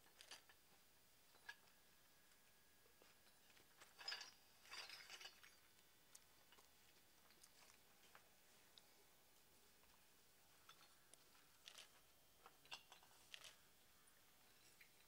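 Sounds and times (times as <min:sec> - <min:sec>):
terracotta pots clinking and scraping: 0:02.9 - 0:08.3, 0:09.8 - 0:13.7, 0:14.4 - 0:15.0.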